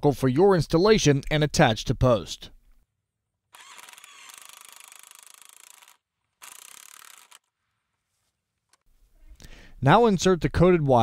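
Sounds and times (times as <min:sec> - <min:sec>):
cordless drill driving screw: 0:03.5 - 0:07.5.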